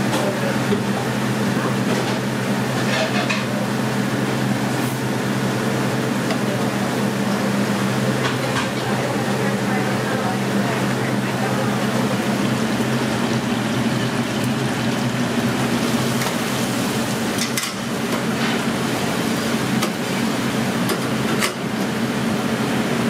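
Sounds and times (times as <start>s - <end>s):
kitchen hum: 0.0s - 23.0s
oil bubbling and hissing: 0.0s - 23.0s
metal fryer baskets clinking: 1.8s - 3.6s, 15.6s - 21.8s.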